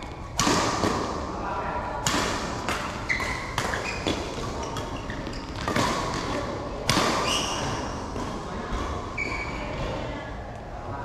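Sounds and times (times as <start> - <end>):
rackets hitting shuttlecock: 0.0 - 1.2, 2.0 - 9.0
shoes squeaking on court floor: 3.0 - 6.1, 7.2 - 8.0, 9.2 - 9.8.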